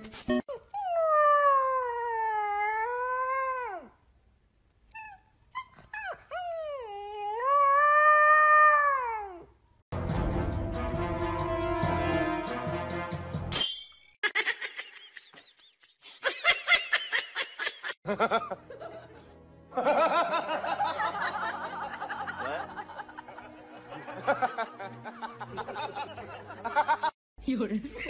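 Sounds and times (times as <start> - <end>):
background music: 10.0 - 13.7, 18.0 - 27.1.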